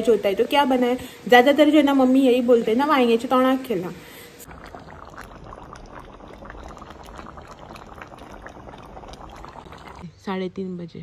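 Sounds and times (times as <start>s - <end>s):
thick gravy bubbling and popping: 4.4s - 10.0s.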